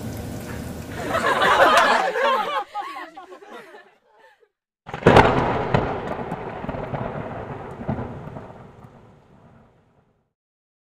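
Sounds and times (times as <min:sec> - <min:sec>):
thunder-like crash: 0:04.9 - 0:10.2.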